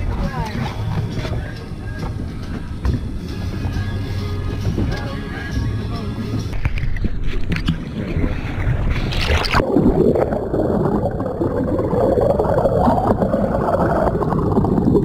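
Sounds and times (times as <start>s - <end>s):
muffled underwater churning: 0.0s - 15.0s
wind: 0.0s - 15.0s
sea water splashing: 6.5s - 15.0s.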